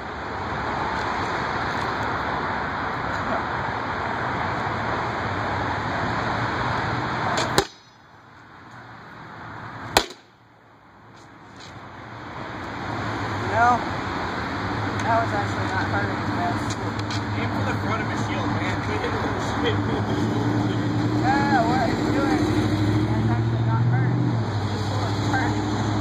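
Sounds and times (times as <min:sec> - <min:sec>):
weapon striking wooden shield: 0:07.4 - 0:07.9, 0:10.0 - 0:10.3.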